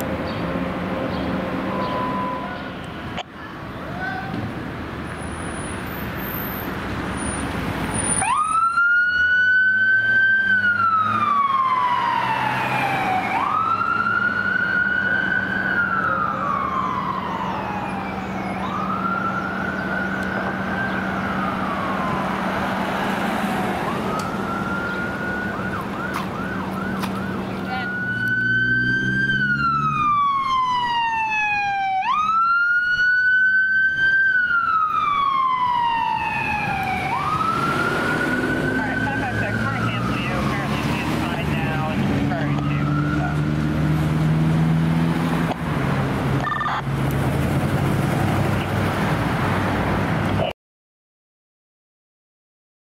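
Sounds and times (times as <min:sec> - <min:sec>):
electronic siren wailing: 0:01.6 - 0:02.7, 0:08.2 - 0:22.5, 0:23.4 - 0:43.6, 0:46.4 - 0:46.9.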